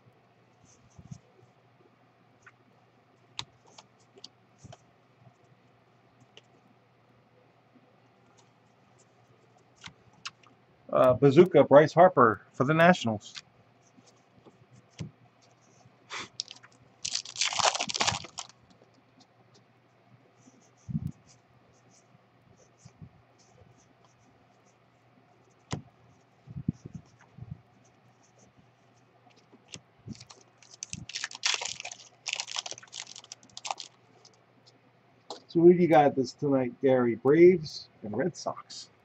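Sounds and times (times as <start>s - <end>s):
crackly rustling: 0.4s - 6.7s, 13.2s - 35.6s
foil card pack tearing open: 16.4s - 18.5s, 30.1s - 34.0s
trading cards tapping and shuffling: 25.6s - 27.6s.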